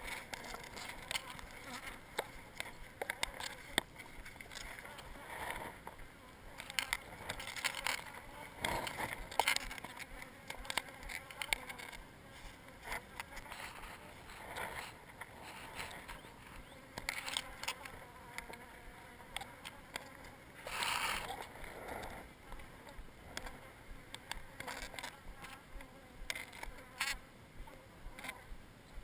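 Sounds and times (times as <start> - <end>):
handling clicks and rustles: 0.0 - 18.8
honeybees buzzing: 0.0 - 29.0.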